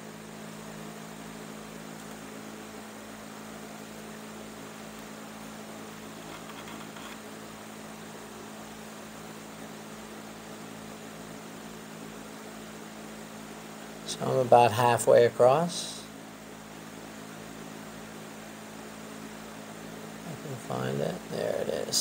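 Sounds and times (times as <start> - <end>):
electrical mains hum: 0.0 - 22.0.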